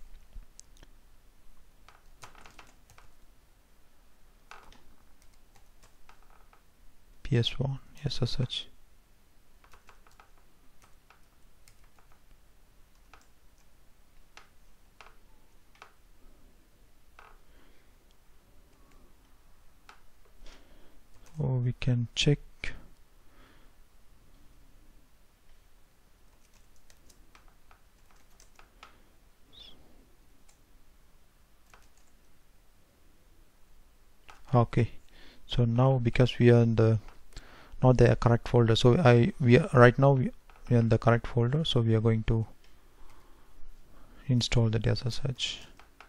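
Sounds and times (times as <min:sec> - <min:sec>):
faint keyboard keystrokes: 0:09.6 - 0:16.0, 0:21.1 - 0:21.4, 0:26.3 - 0:29.0, 0:31.6 - 0:32.2.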